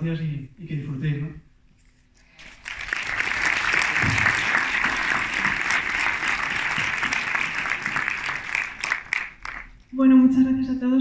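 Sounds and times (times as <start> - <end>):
audience applauding: 2.4 - 9.9.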